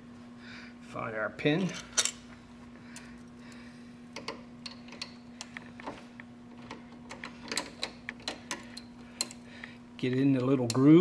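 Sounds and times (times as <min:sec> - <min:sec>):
steady low hum: 0:00.0 - 0:11.0
small metal parts clicking: 0:04.2 - 0:05.6.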